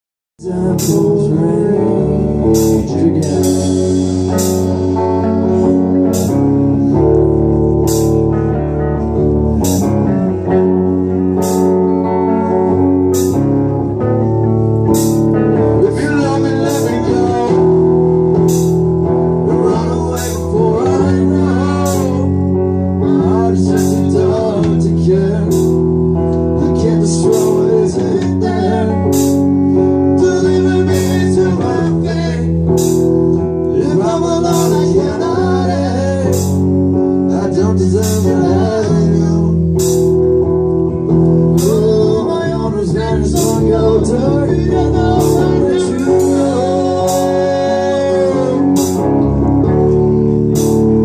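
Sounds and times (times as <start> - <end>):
man singing: 0.4 - 6.3, 15.5 - 18.2, 19.3 - 32.8, 33.6 - 39.9, 41.5 - 49.5
live rock band playing: 0.4 - 51.0.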